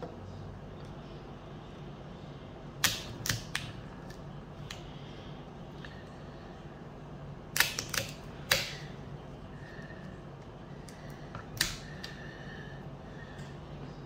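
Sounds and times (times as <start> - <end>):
knife cracking chestnut shells: 7.6 - 8.8.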